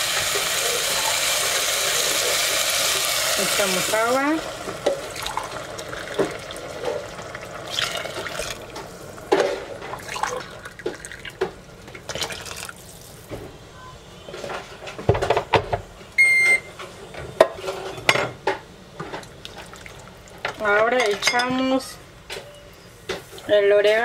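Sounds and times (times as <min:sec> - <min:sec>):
water pouring into a pot: 0:00.0 - 0:08.8, 0:09.8 - 0:11.4, 0:12.1 - 0:13.2
short electronic beep: 0:16.2 - 0:16.7.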